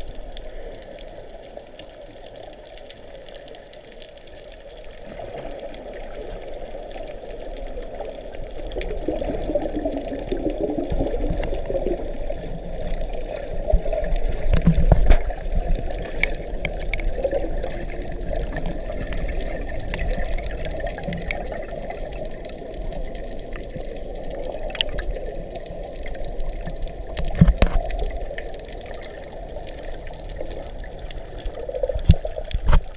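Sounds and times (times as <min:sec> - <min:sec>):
muffled underwater noise: 0:00.0 - 0:32.9
small clicks: 0:24.6 - 0:29.0.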